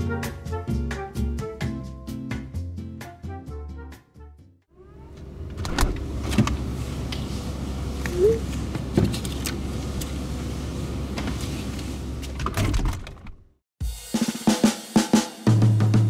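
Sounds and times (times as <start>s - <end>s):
refrigerator hum: 4.8s - 13.4s
knocks and rattles: 12.4s - 13.4s.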